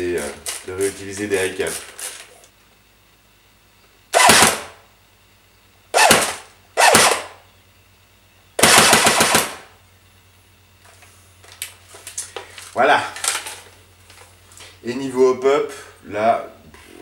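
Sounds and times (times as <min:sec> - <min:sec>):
airsoft gun automatic bursts: 0:04.1 - 0:04.8, 0:05.9 - 0:07.4, 0:08.6 - 0:09.8.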